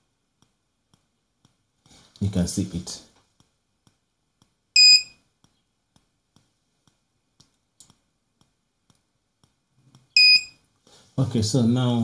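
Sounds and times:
faint regular ticking: 0.0 - 2.3, 3.1 - 10.8
high-pitched buzzer beep: 4.8 - 5.2, 10.2 - 10.6.

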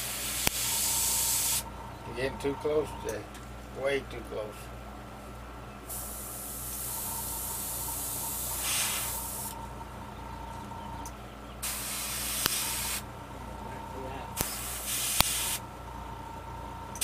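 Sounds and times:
airbrush spraying hiss: 0.0 - 1.6, 5.9 - 9.6, 11.6 - 13.0, 14.4 - 15.6.

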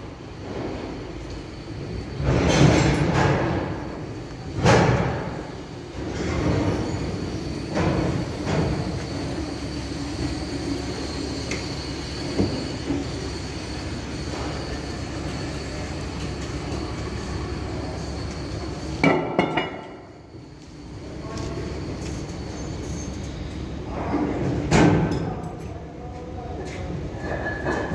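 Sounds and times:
railway depot rumble: 0.0 - 27.9
faint high whine: 3.7 - 24.1.

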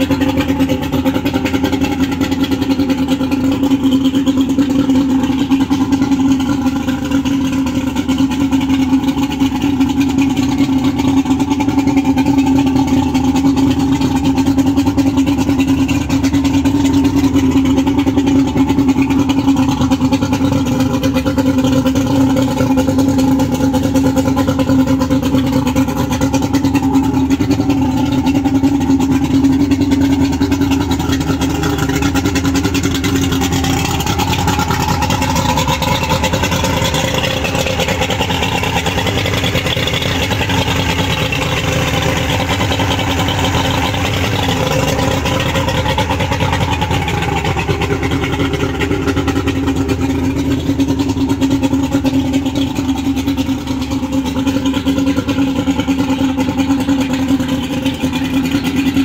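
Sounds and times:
outboard motor running: 0.0 - 59.0.

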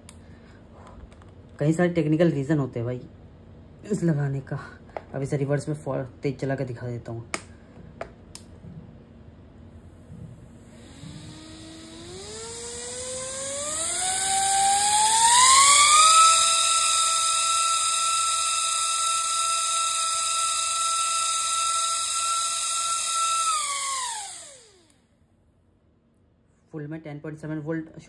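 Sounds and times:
small motor fan whining: 10.0 - 25.1.

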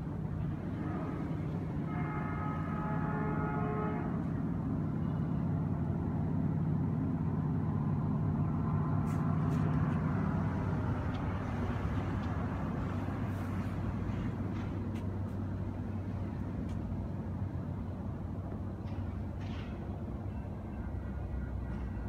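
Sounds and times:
locomotive engine droning: 0.0 - 22.0
locomotive air horn: 0.6 - 4.6.

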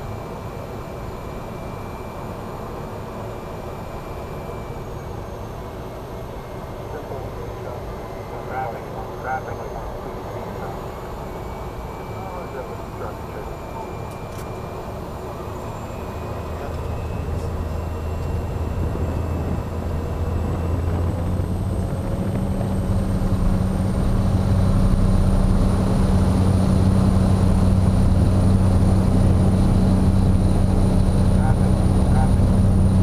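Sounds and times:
low propeller drone: 0.0 - 33.0
high turbine whine rising in pitch: 10.6 - 33.0.

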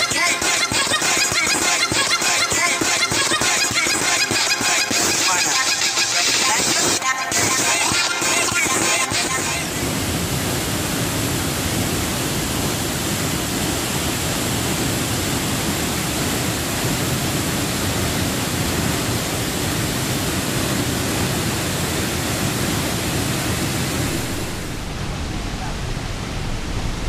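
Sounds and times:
waterfall pouring into a pool: 9.4 - 24.9.

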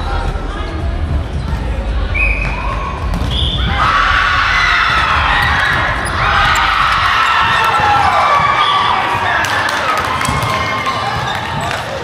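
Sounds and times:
shoes squeaking on court floor: 4.9 - 9.3.

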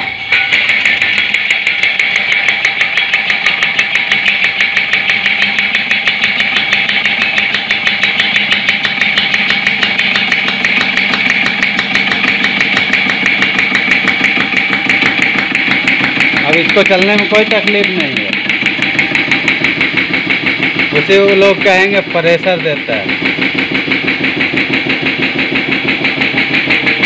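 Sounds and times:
pressure pump piston knocking: 0.0 - 27.0.

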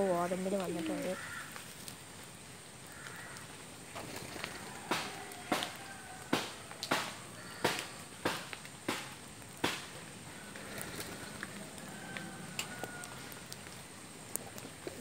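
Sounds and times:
low steady hiss: 0.0 - 15.0
faint ticks: 2.9 - 4.6, 10.4 - 15.0.

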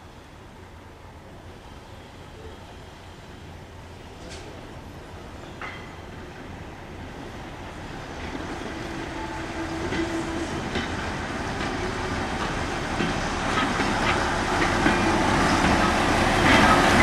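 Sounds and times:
diesel locomotive engine: 0.0 - 17.0
wheels clicking over rail joints: 9.8 - 17.0.

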